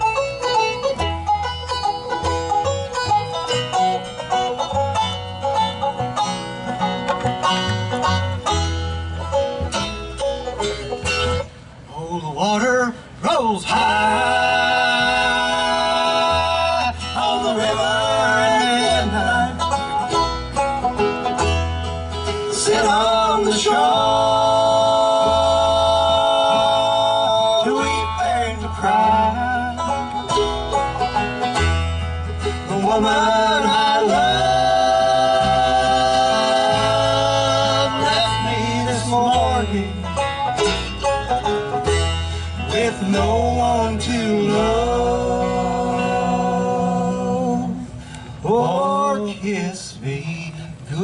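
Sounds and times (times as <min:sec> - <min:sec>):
banjo picking: 0:00.0 - 0:12.3, 0:13.3 - 0:49.7
upright bass: 0:00.0 - 0:51.0
harmony singing: 0:13.2 - 0:20.0, 0:22.4 - 0:30.2, 0:32.5 - 0:40.2, 0:42.6 - 0:51.0.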